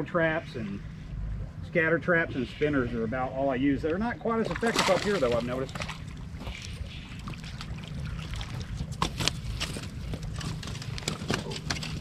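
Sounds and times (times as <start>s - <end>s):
wind rumbling on microphone: 4.5s - 12.0s.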